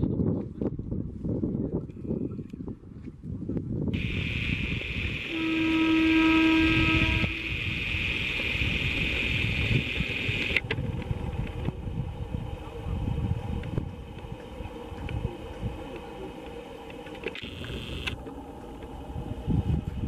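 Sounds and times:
low rumble of train: 0:00.0 - 0:20.0
high-pitched hiss: 0:04.0 - 0:10.6, 0:11.9 - 0:18.2
train horn blast: 0:05.3 - 0:07.6.

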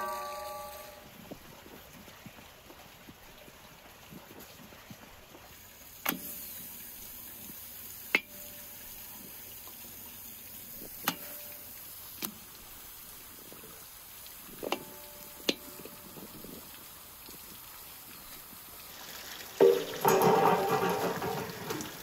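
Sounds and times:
faint steady hiss: 0:00.0 - 0:22.0
meat dropping into metal pot: 0:19.6 - 0:22.0.

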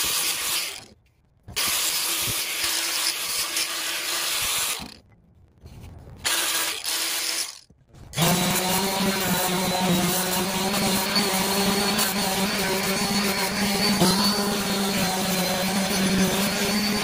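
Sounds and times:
angle grinder sanding wood: 0:08.2 - 0:17.0
orbital sander humming: 0:08.2 - 0:17.0.

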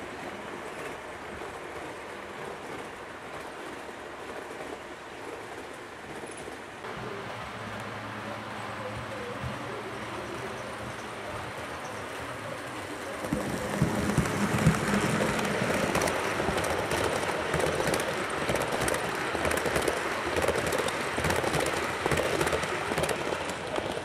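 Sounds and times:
model train running on rails: 0:00.0 - 0:24.0.

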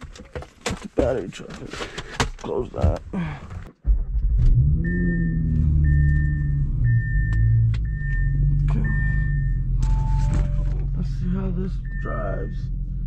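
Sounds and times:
car engine starting and idling: 0:03.5 - 0:13.0
dashboard warning chime beeping: 0:04.6 - 0:12.7.

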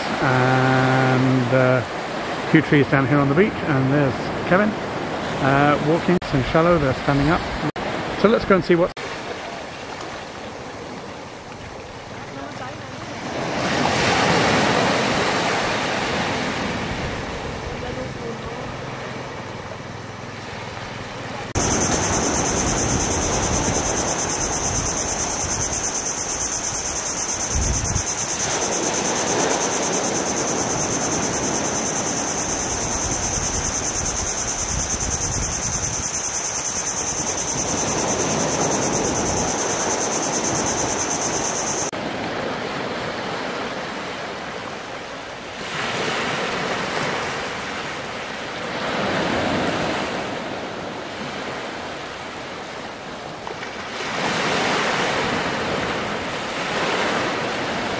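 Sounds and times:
small waves washing on a beach: 0:00.0 - 0:57.9
wind on the microphone: 0:21.6 - 0:43.1.

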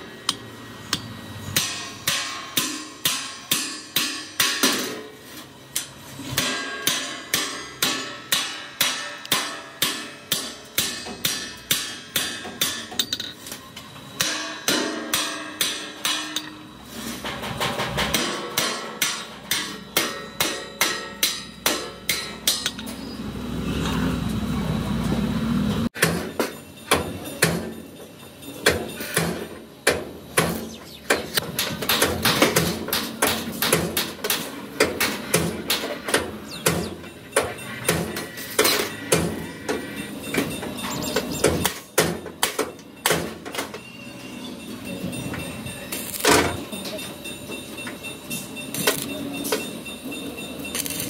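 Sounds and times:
hammer beating metal: 0:00.3 - 0:05.2, 0:06.3 - 0:13.3, 0:14.1 - 0:22.9, 0:26.0 - 0:44.0.

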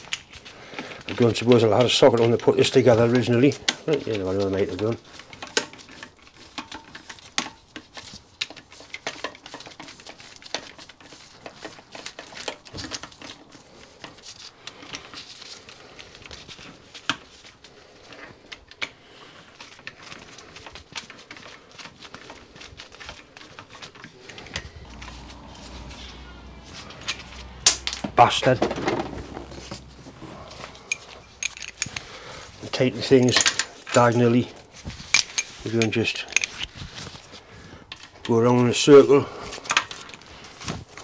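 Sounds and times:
metallic clicks of nuts and tool: 0:30.6 - 0:32.2, 0:33.1 - 0:34.2, 0:35.1 - 0:36.7.

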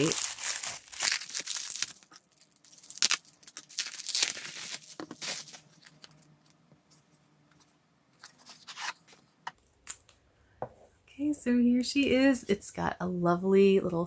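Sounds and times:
bubble wrap crinkling: 0:00.0 - 0:07.0.

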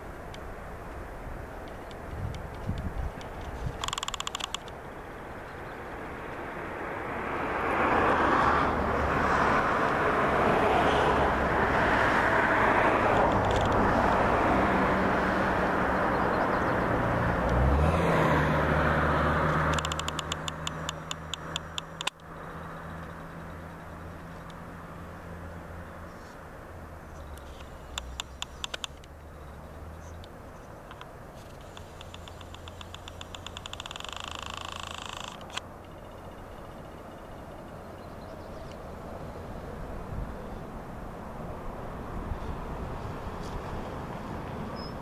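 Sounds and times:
low engine hum: 0:00.0 - 0:45.0
motor vehicle passing: 0:01.0 - 0:45.0
run of clicks: 0:01.6 - 0:04.8, 0:19.7 - 0:22.3, 0:27.2 - 0:29.2, 0:30.0 - 0:37.0.

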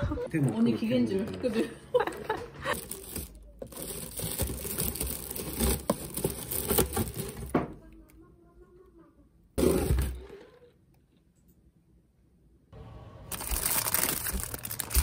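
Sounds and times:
paper packing wrap crinkling: 0:02.7 - 0:07.5, 0:13.3 - 0:15.0.

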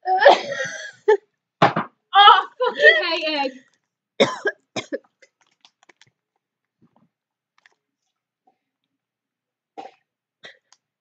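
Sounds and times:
mouth clicks of chewing: 0:05.2 - 0:06.2.

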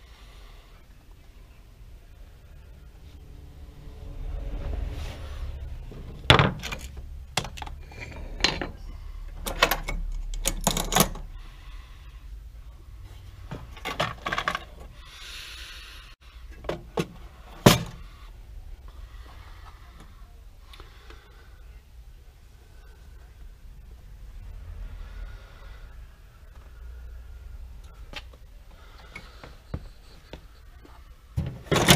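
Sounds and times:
knocks and clacks of hard objects: 0:31.4 - 0:31.9.

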